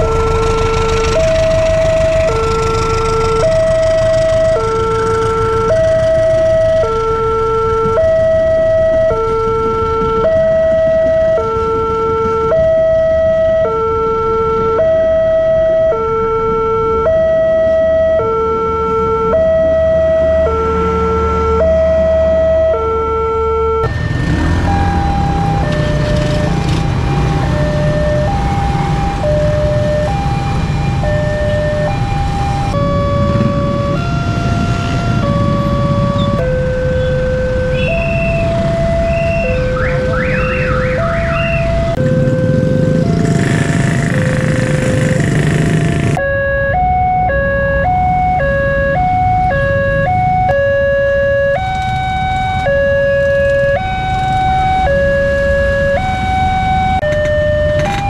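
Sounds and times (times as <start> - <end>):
motorbike engines idling: 0.0 - 8.1, 24.1 - 30.2, 30.8 - 46.2
level crossing two-tone alarm: 21.6 - 45.4, 46.0 - 58.0
passing train rumble: 32.0 - 46.2.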